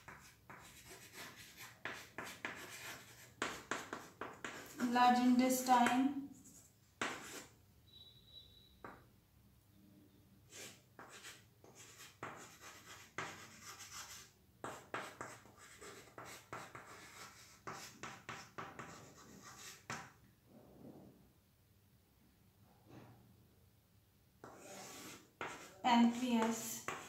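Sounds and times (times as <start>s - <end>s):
chalk scratching on chalkboard: 0.0s - 7.5s, 10.5s - 20.2s, 24.4s - 27.0s.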